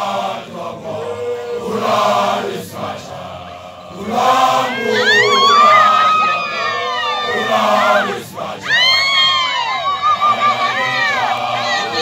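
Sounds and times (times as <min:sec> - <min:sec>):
group of voices chanting: 0:00.0 - 0:12.0
high rising calls: 0:03.8 - 0:12.0.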